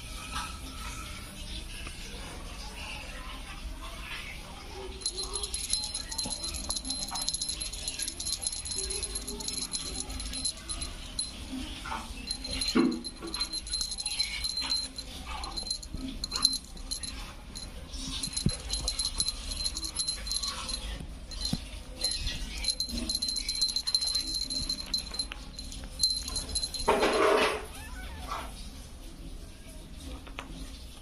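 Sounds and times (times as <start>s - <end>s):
toy bell jingling: 4.7s - 28.4s
kitten meowing: 27.5s - 28.6s.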